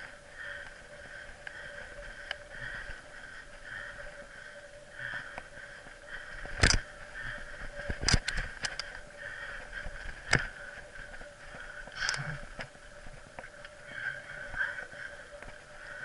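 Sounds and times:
mountain bike rolling on dirt: 0.0s - 16.0s
small clicks: 6.4s - 9.1s, 11.8s - 13.8s.

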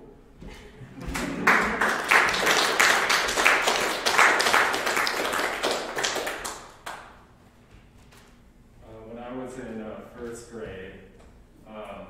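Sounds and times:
people applauding: 1.0s - 7.2s.

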